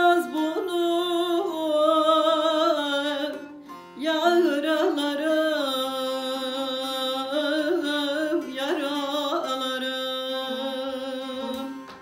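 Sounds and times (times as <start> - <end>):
lute accompaniment: 0.0 - 12.0.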